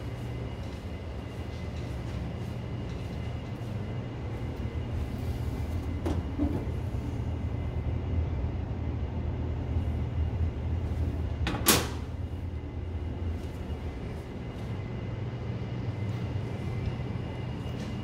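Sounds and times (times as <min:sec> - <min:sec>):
steady low rumble: 0:00.0 - 0:18.0
metal panel door clicking open: 0:11.5 - 0:12.0
metal door clacking shut: 0:11.5 - 0:12.1.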